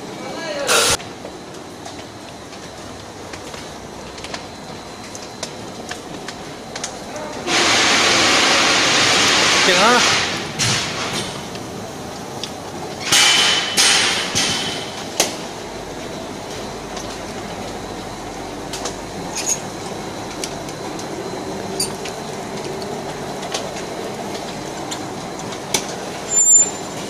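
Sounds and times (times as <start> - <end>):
production line mechanical rumble: 0.0 - 27.0
loud noise burst with squeal: 7.4 - 11.4, 26.1 - 27.0.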